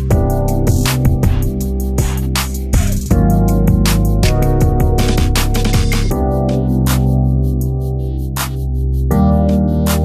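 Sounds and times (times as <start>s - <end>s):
electronic music with beat: 0.0s - 10.0s.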